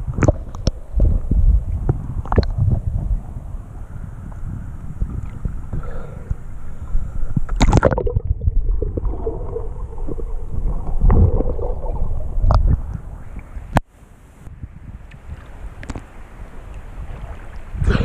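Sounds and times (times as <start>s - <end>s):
muffled underwater river churning: 0.0s - 18.0s
water splash: 7.5s - 13.8s.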